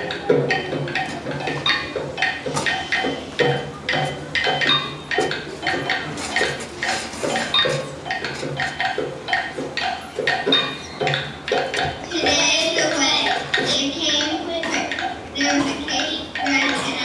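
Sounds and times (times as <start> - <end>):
percussion struck notes: 0.0 - 17.0.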